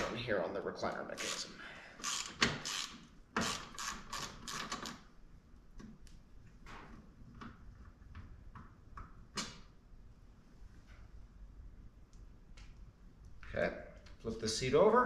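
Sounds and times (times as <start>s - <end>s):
socket ratchet clicking: 1.2s - 5.0s.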